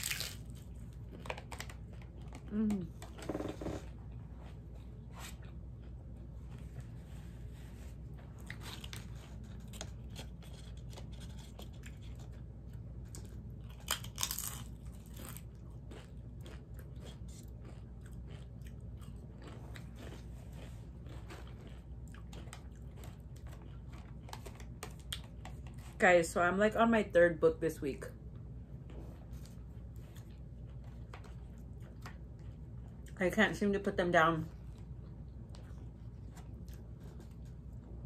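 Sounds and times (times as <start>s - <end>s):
crunchy taco chewing: 0.0s - 4.3s, 8.1s - 26.0s, 28.9s - 33.2s, 34.6s - 38.0s.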